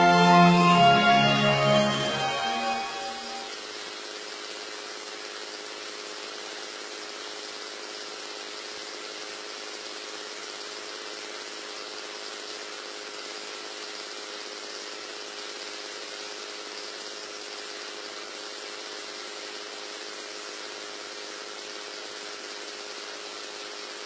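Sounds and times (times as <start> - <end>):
machine humming: 0.0 - 3.6.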